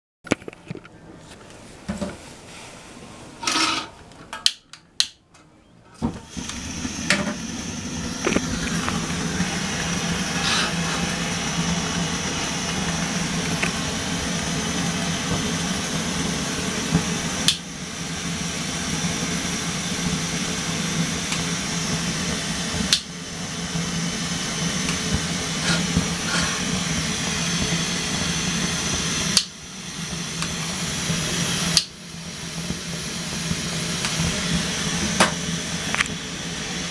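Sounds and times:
stove igniter clicks: 0:04.4 - 0:05.2, 0:17.4 - 0:17.6, 0:22.9 - 0:23.1, 0:29.3 - 0:29.5, 0:31.7 - 0:31.9
stove burner hissing: 0:06.0 - 0:36.9.

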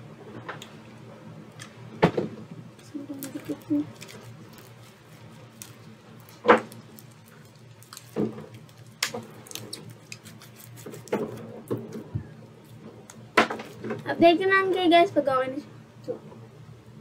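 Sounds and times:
low steady hum: 0:00.0 - 0:17.0
slime squelching: 0:02.8 - 0:13.2.

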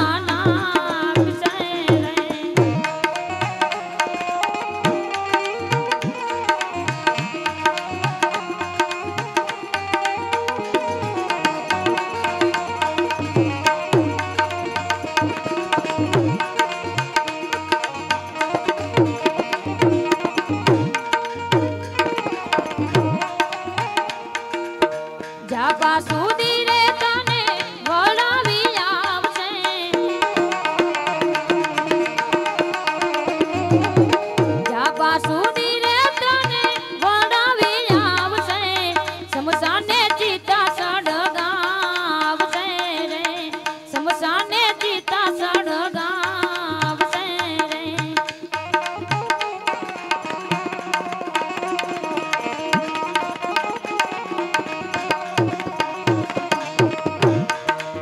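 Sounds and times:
woman singing: 0:00.0 - 0:10.4, 0:25.2 - 0:31.9, 0:32.8 - 0:49.0
harmonium drone: 0:00.0 - 0:58.0
tabla rhythm: 0:00.0 - 0:58.0.

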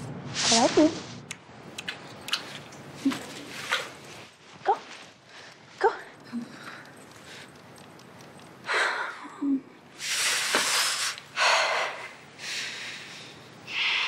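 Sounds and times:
woman breathing: 0:05.2 - 0:07.6, 0:08.6 - 0:14.0.

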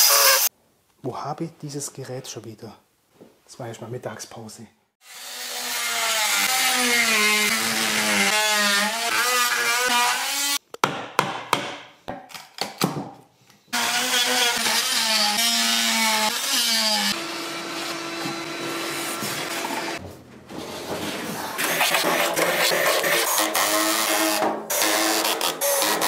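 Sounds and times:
electric power tool cutting wood: 0:00.0 - 0:00.5, 0:05.0 - 0:10.6, 0:13.8 - 0:20.0.

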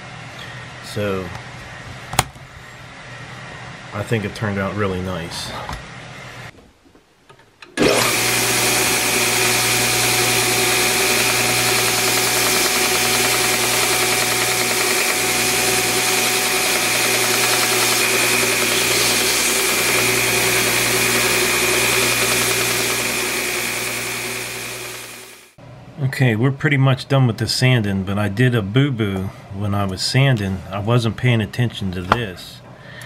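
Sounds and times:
belt sander running: 0:07.8 - 0:25.6.

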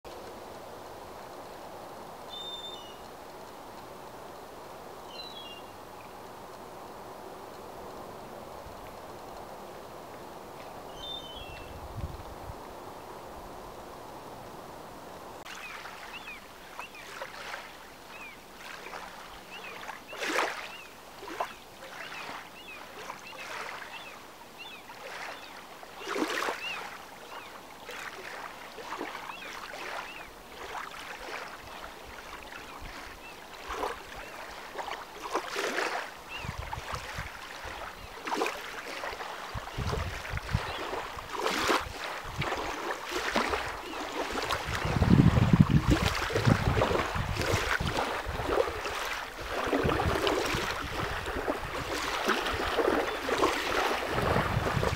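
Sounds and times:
small waves lapping against shore: 0:00.1 - 0:54.9
small bird chirping: 0:02.3 - 0:03.0
wind buffeting microphone: 0:11.4 - 0:13.6, 0:36.3 - 0:37.8, 0:39.5 - 0:54.9.

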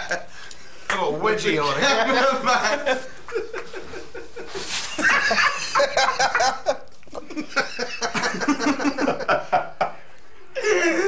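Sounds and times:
man chuckling: 0:10.6 - 0:11.0.

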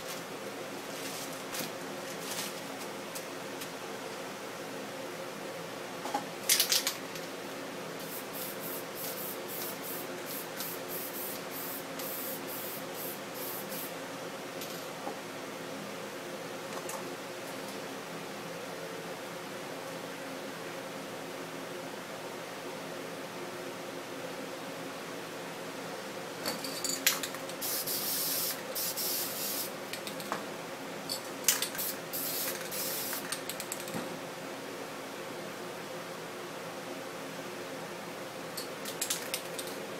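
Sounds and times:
spray paint can hissing: 0:08.0 - 0:13.9, 0:27.6 - 0:29.7, 0:31.8 - 0:33.2.

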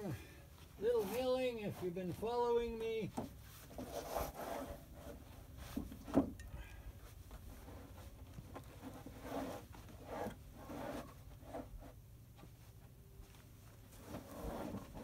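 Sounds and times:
wooden boards scraping: 0:03.2 - 0:06.4, 0:07.5 - 0:12.0, 0:13.9 - 0:15.0.

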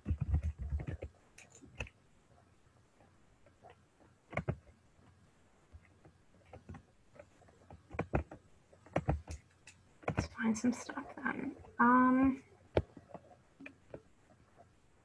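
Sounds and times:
computer keyboard clicking: 0:00.0 - 0:02.0, 0:04.3 - 0:04.7, 0:07.6 - 0:10.4.

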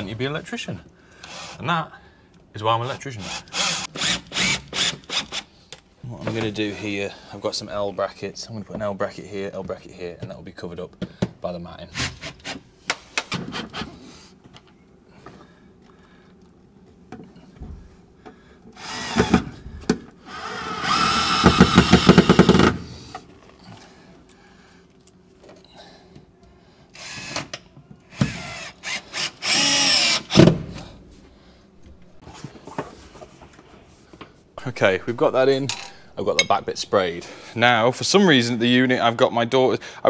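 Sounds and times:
cordless drill driving screws: 0:03.2 - 0:05.5, 0:18.8 - 0:19.4, 0:20.3 - 0:22.8, 0:27.0 - 0:30.5.

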